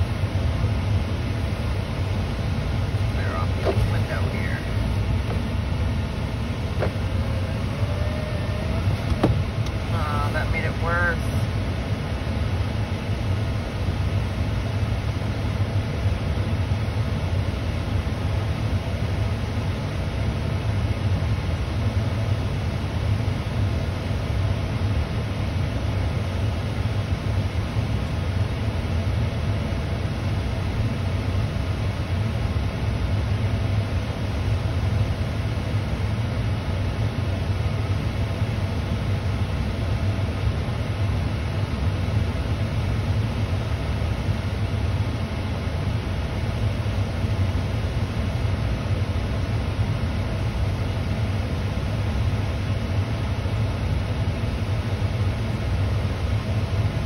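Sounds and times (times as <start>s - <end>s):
car engine idling: 0.0s - 18.8s.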